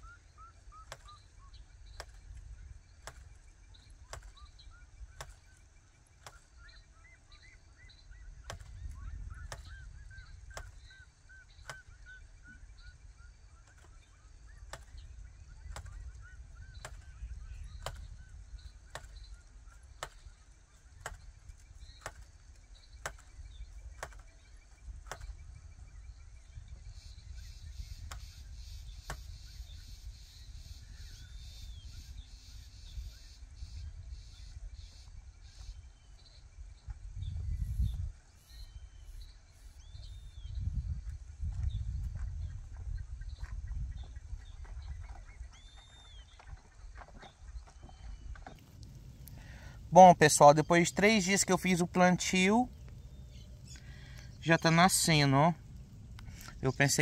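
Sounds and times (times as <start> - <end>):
birds honking calls: 0.0 - 25.3, 48.0 - 57.0
wooden hand planter clacking: 3.0 - 3.3, 4.0 - 4.4, 16.8 - 17.1, 18.9 - 19.2, 21.0 - 22.4, 23.0 - 24.4
steady low rumble: 47.9 - 57.0.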